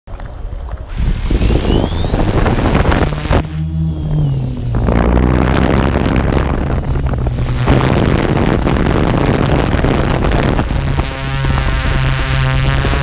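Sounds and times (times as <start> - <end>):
wind rush on microphone: 0.1 - 13.0
drone motors buzzing: 0.9 - 13.0.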